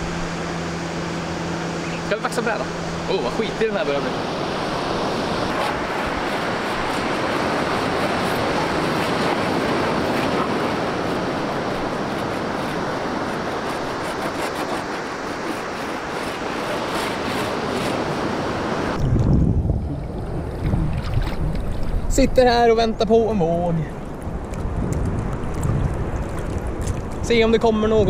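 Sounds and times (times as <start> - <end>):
surf breaking on beach: 1.8 - 22.2
wind rumble on microphone: 3.4 - 13.9, 15.8 - 28.0
wax rubbed on surfboard: 5.5 - 19.0.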